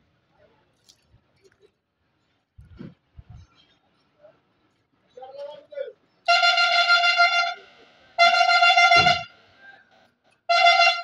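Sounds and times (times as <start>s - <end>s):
truck horn blasts: 6.3s - 9.4s, 10.5s - 11.0s.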